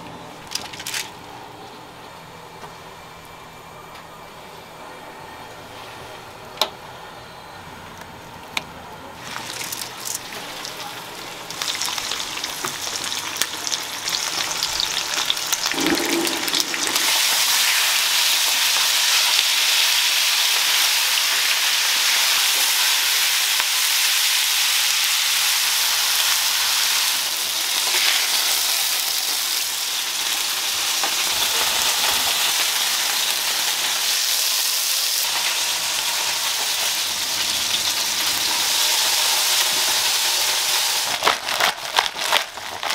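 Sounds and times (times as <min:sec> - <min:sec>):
fish sizzling in hot oil: 0:09.2 - 0:42.9.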